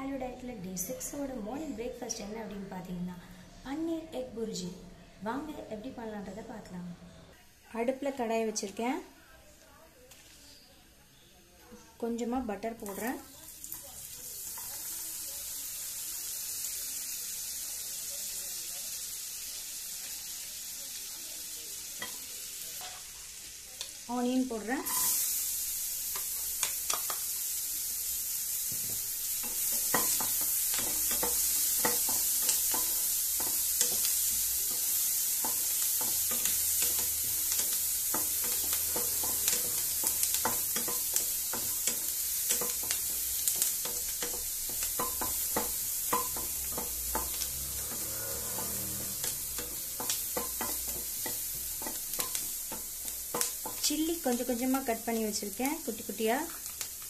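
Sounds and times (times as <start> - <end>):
onions sizzling in butter: 7.4 - 57.0
spatula tapping and scraping pan: 26.2 - 27.3, 28.7 - 54.9.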